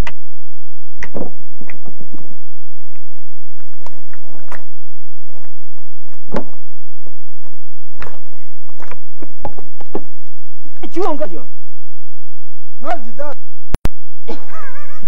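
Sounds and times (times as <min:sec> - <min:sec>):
stones knocking and scraping: 0:05.3 - 0:10.5.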